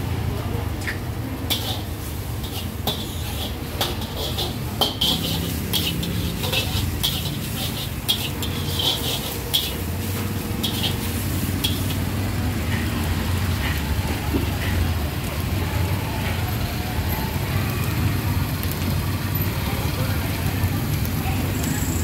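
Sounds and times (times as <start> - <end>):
metal utensils clinking on cookware: 1.4 - 13.8.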